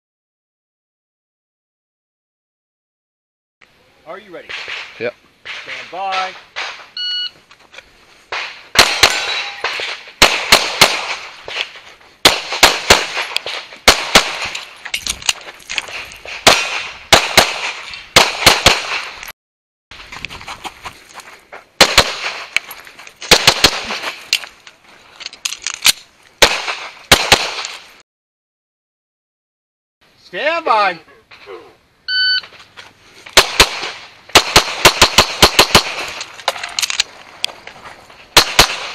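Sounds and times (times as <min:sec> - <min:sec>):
pistol shots with echo: 0:08.3 - 0:11.4, 0:12.2 - 0:14.6, 0:16.4 - 0:19.1, 0:21.8 - 0:22.5, 0:23.3 - 0:24.0, 0:26.4 - 0:27.7, 0:33.4 - 0:36.2, 0:38.4 - 0:38.9.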